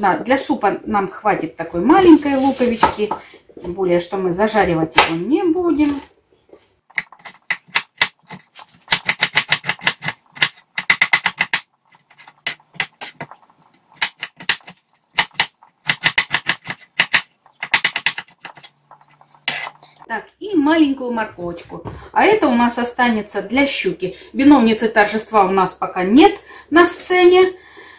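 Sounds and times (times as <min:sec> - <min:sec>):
knife chopping on wooden board: 0:06.9 - 0:13.3, 0:14.0 - 0:18.7.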